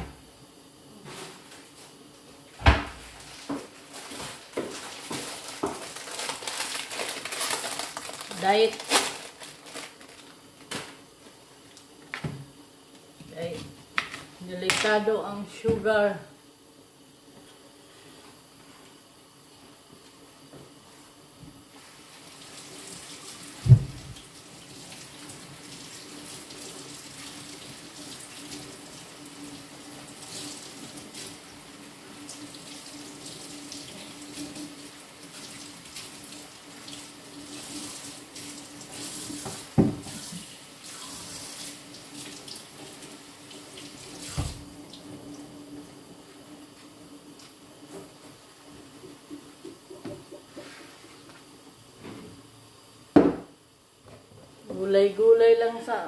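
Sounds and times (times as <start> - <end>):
dull knocks against sink: 23.6 - 24.1, 39.8 - 40.1, 53.2 - 53.5.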